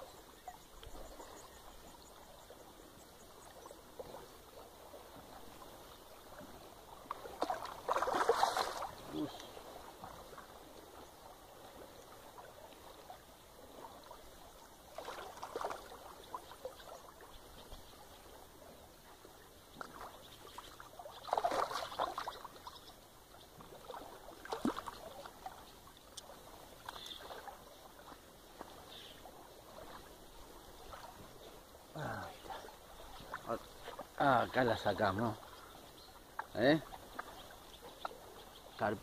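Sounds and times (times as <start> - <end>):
fish splashing in water: 6.3 - 10.7, 14.9 - 17.3, 19.8 - 22.7, 23.6 - 30.2.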